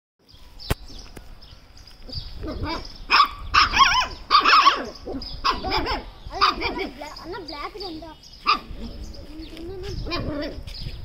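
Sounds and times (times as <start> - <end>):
puppies yelping and barking: 2.4 - 11.0.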